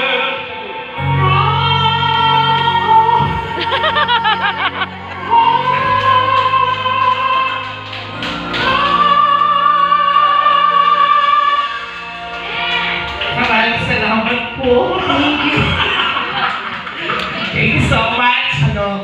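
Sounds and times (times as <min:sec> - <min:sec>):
person singing into microphone: 0:00.0 - 0:12.6
backing music: 0:00.0 - 0:19.0.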